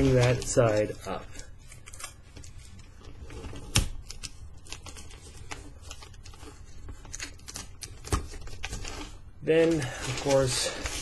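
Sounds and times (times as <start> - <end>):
newspaper wrapping crinkling: 0.0 - 3.1, 3.7 - 11.0.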